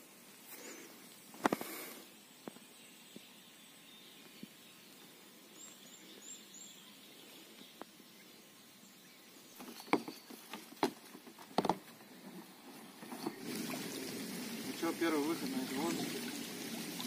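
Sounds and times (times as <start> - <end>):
faint outdoor ambience: 0.0 - 17.0
knocks and thumps: 9.6 - 11.8.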